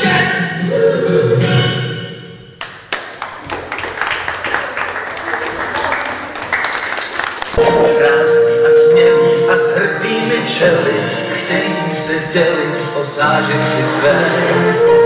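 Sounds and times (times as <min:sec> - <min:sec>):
audience applause: 0:02.9 - 0:07.6
pop song music: 0:07.6 - 0:15.0.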